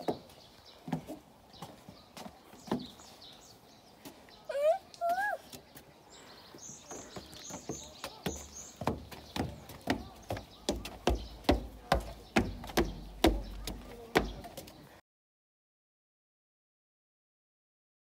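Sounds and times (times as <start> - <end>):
footsteps on wooden planks: 0.0 - 4.3, 5.0 - 15.0.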